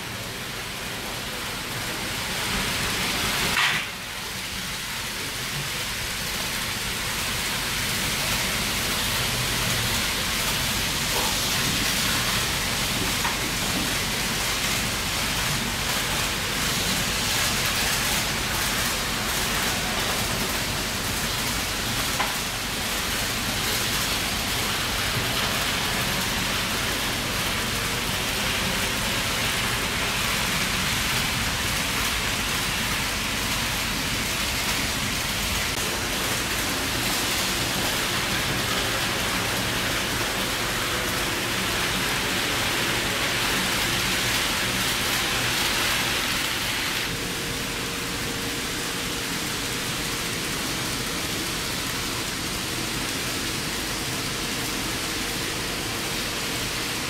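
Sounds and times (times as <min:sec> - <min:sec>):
model train wheels on rail: 0:00.0 - 0:57.0.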